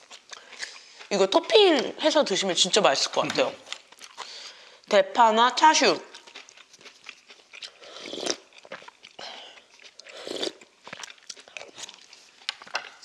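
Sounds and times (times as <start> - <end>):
chewing: 0.0 - 2.8, 3.6 - 4.8, 6.0 - 13.0
noodles being slurped: 6.3 - 12.5.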